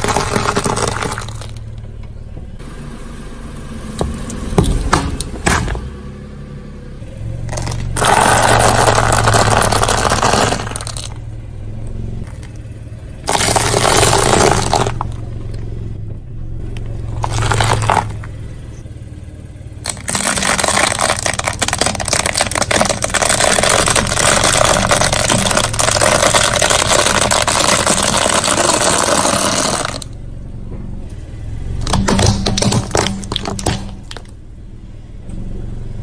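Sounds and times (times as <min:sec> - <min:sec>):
tyre crushing foam tubes: 0:00.0 - 0:01.6, 0:07.5 - 0:11.2, 0:13.2 - 0:15.2, 0:17.0 - 0:18.3, 0:19.8 - 0:30.1, 0:31.8 - 0:34.4
car engine humming: 0:00.0 - 0:36.0.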